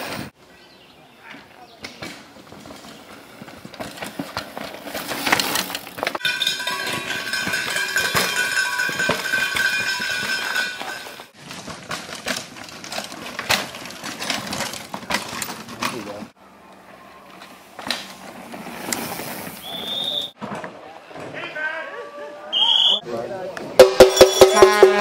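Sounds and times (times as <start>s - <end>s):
mountain bikes clattering over rocks: 1.3s - 16.4s
high ringing tones: 6.2s - 11.3s.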